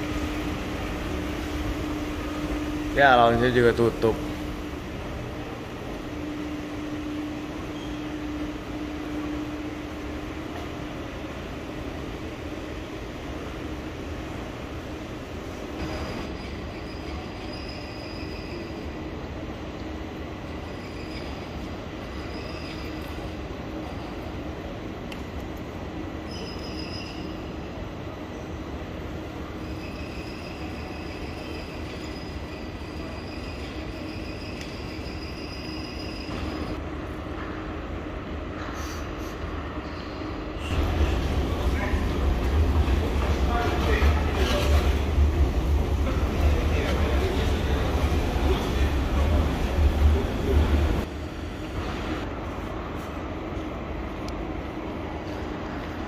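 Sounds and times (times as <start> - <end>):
steady hum tone: 0.0 - 16.2
station hall low rumble: 0.0 - 56.0
ventilation and machinery hum: 0.0 - 56.0.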